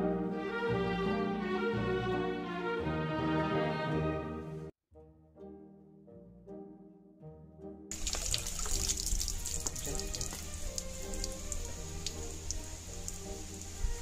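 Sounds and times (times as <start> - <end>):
soft background music: 0.0 - 14.0
water splashing into stone basin: 7.9 - 14.0.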